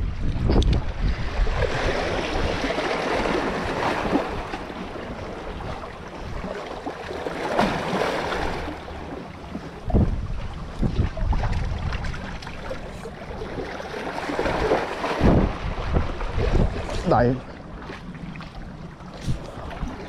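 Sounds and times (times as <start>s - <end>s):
sea water splashing on shore: 1.2s - 20.0s.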